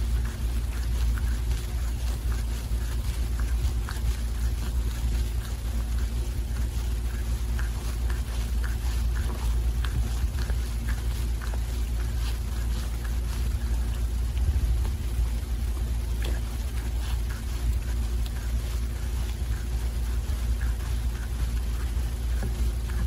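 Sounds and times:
cat licking fur: 0:00.0 - 0:23.0
steady low rumble: 0:00.0 - 0:23.0.

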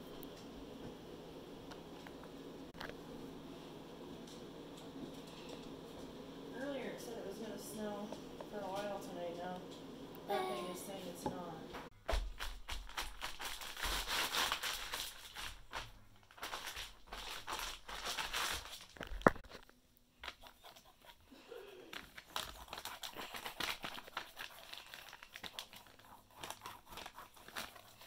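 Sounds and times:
plastic bag crinkling: 0:12.4 - 0:19.7, 0:21.9 - 0:28.0.

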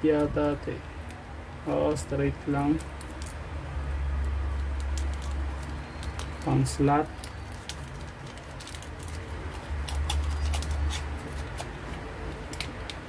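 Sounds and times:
plastic packaging crinkling: 0:04.2 - 0:13.0.

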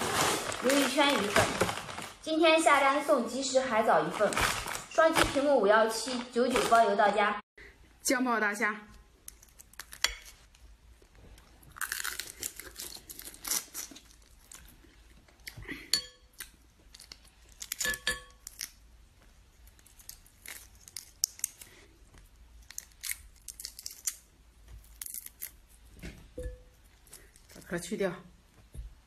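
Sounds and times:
prawn shells cracking by hand: 0:11.7 - 0:14.6, 0:16.4 - 0:18.8, 0:19.6 - 0:21.8, 0:22.5 - 0:25.6.

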